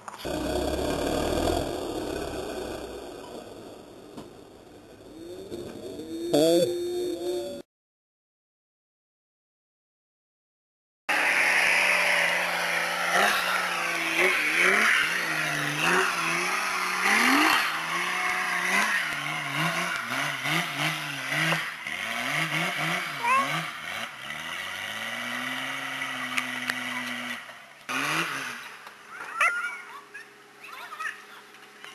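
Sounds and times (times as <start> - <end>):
engine revving hard: 0.2 - 4.1, 11.1 - 28.8.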